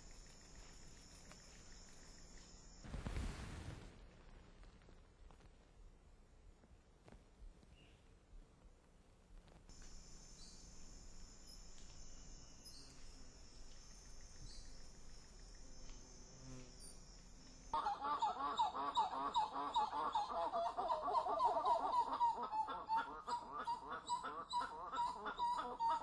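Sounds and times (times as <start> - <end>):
faint high hiss: 0.0 - 6.6, 9.7 - 17.8
monkey calling: 17.8 - 26.0.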